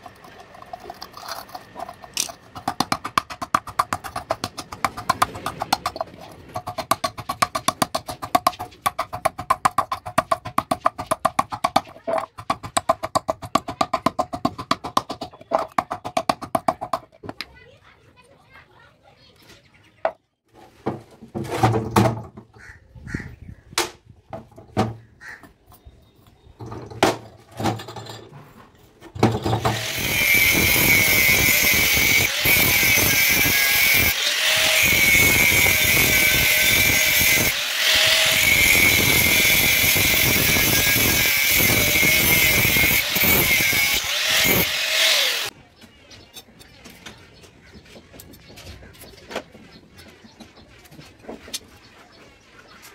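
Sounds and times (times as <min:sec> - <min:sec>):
scattered knocks and clicks: 0:00.0 - 0:17.5
angle grinder cutting steel: 0:29.5 - 0:45.5.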